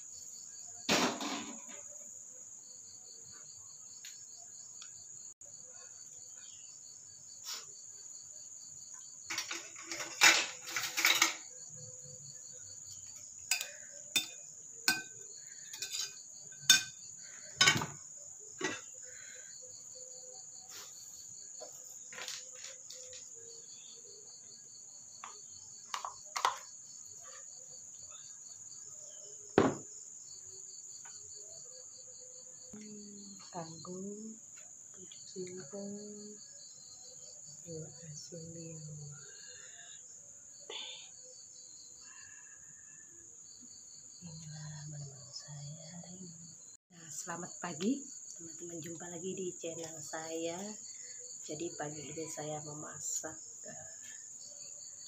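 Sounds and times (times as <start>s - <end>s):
insects droning: 0.0s - 55.0s
pulsing insect chirp: 0.0s - 55.0s
spoon clinking on china plates: 13.5s - 17.0s.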